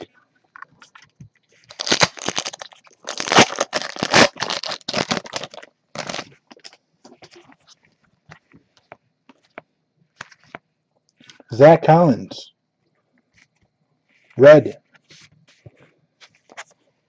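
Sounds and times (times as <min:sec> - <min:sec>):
plastic wrapper tearing and crinkling: 0:01.6 - 0:07.5
cards rustling and clicking: 0:15.0 - 0:16.8.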